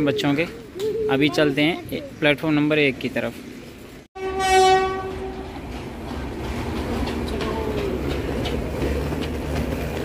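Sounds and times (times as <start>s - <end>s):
train rumbling on tracks: 0.0s - 10.0s
train horn: 4.2s - 5.5s.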